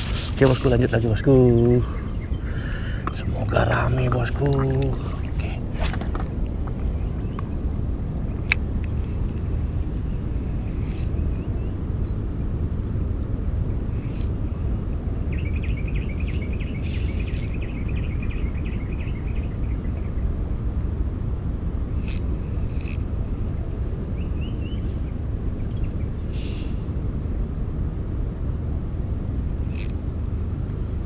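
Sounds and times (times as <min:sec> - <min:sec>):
steady low rumble: 0:00.0 - 0:31.0
sharp clicks: 0:29.7 - 0:30.0.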